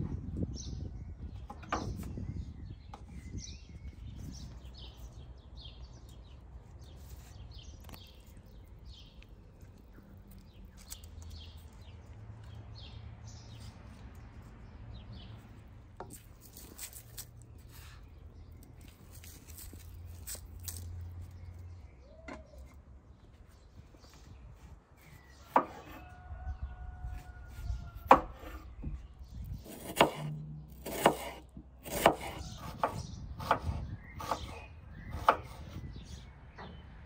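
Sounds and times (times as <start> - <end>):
small birds chirping: 0.0 - 37.0
knife chopping on wooden board: 25.5 - 26.0, 28.0 - 28.6, 29.6 - 35.8.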